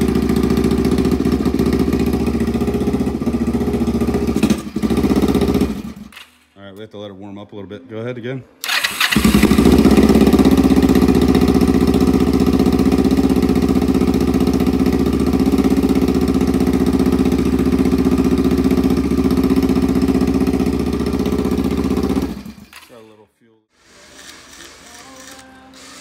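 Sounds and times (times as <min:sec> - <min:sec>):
motorcycle engine idling: 0:00.0 - 0:06.1, 0:08.7 - 0:22.7.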